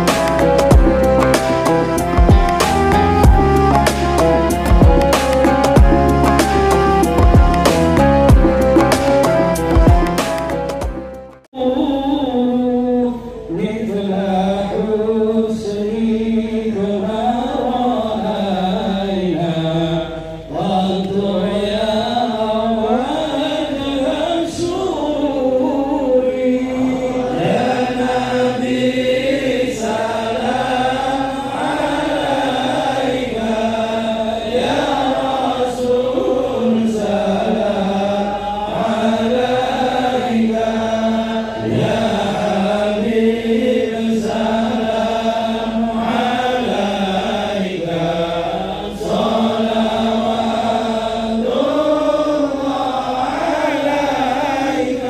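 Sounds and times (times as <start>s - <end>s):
group chanting devotional chant: 11.6s - 55.0s.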